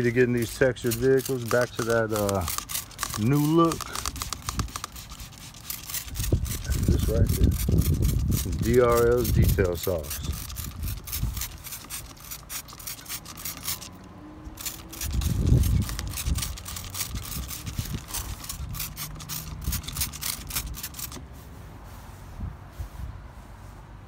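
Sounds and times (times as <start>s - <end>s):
spray bottle spraying: 1.4s - 6.7s.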